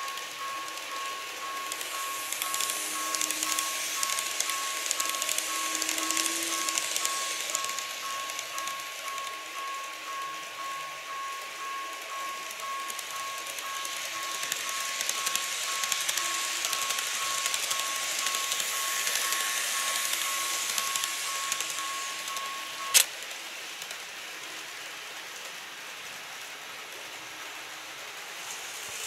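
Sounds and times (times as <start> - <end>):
wheels clicking on track: 0.0 - 24.6
model train rattling: 0.0 - 29.0
electronic warning tone: 1.4 - 9.9.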